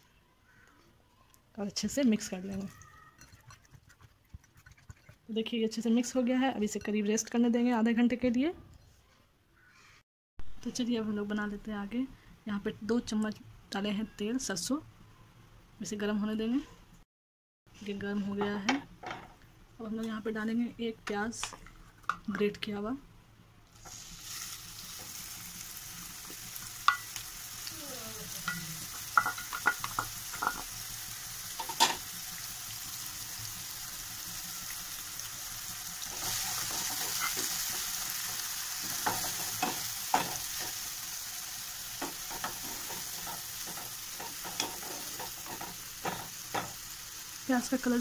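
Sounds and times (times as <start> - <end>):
onion sizzling in oil: 23.7 - 48.0
spatula scraping pan: 36.2 - 40.8, 42.0 - 46.7.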